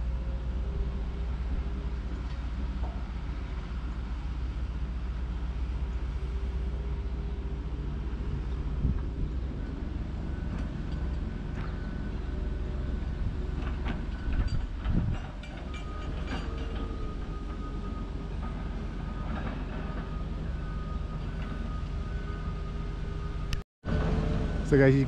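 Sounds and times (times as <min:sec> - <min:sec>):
diesel engine under load: 0:00.0 - 0:25.0
metallic clanks and knocks: 0:13.5 - 0:17.6, 0:18.4 - 0:20.2.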